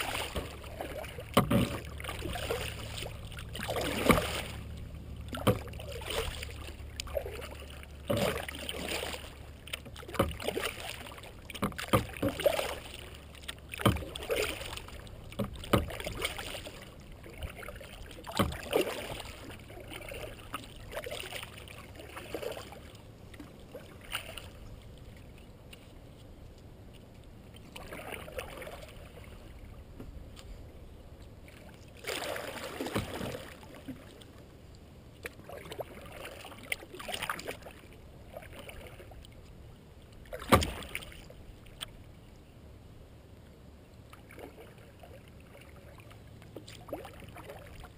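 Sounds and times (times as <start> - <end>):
paddle splashing in water: 0.0 - 25.9, 26.9 - 30.6, 31.2 - 34.5, 35.1 - 42.0, 44.1 - 47.9.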